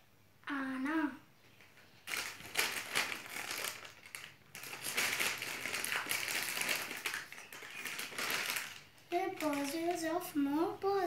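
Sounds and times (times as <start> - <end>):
plastic bag crinkling: 2.0 - 10.3.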